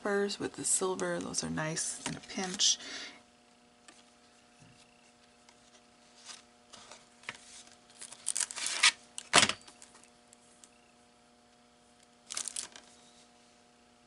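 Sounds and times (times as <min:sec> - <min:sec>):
faint steady hum: 0:00.0 - 0:14.0
plastic packaging crinkling: 0:06.2 - 0:10.1, 0:12.2 - 0:13.0.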